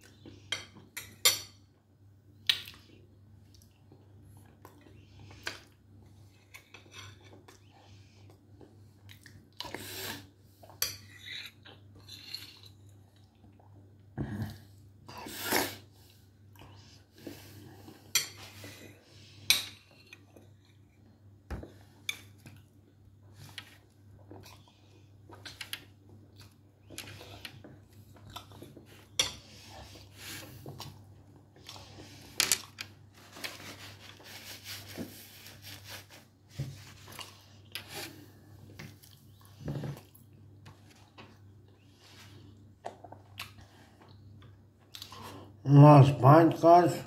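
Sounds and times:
chewing and mouth sounds: 0:08.3 - 0:09.8, 0:42.7 - 0:45.2.

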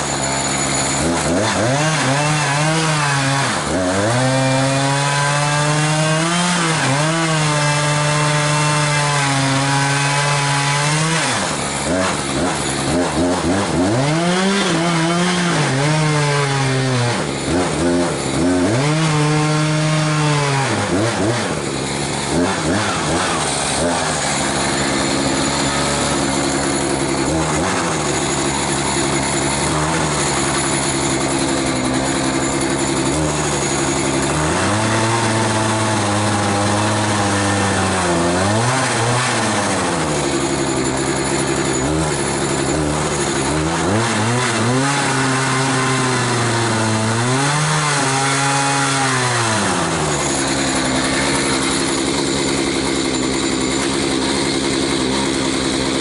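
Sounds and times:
chainsaw cutting into log: 0:00.0 - 0:56.0
chainsaw running: 0:00.0 - 0:56.0.

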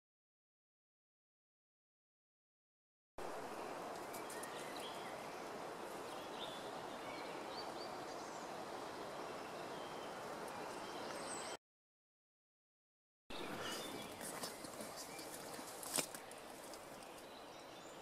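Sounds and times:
outdoor background noise: 0:03.2 - 0:11.6, 0:13.3 - 0:18.0.

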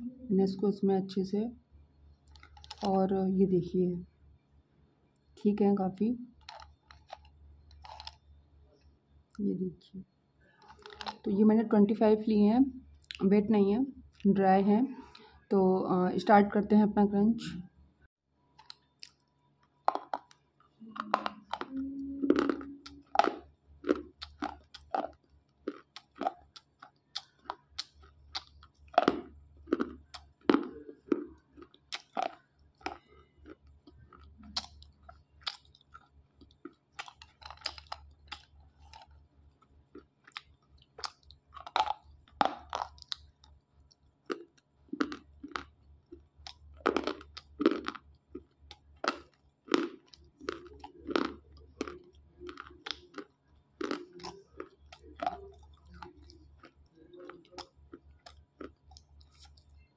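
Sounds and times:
crisp chewing crunches: 0:02.2 - 0:03.0, 0:06.3 - 0:08.2, 0:10.6 - 0:11.3, 0:18.6 - 0:59.9.

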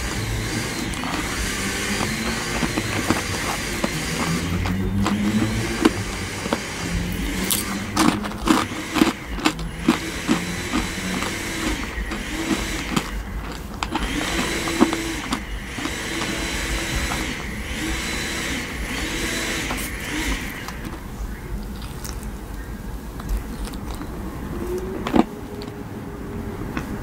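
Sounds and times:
chewing marshmallow: 0:00.0 - 0:25.8.

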